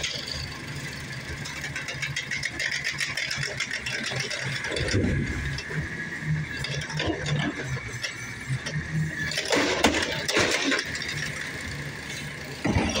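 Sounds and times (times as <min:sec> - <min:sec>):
garbage truck engine humming: 0:00.0 - 0:13.0
trash cart clattering: 0:09.2 - 0:11.6, 0:12.4 - 0:13.0.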